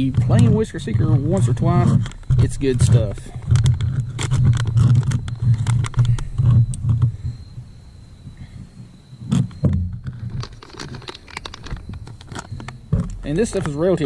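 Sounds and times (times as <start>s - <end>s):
low pulsing rumble: 0.0s - 10.6s
bag crinkling and rustling: 9.3s - 14.0s.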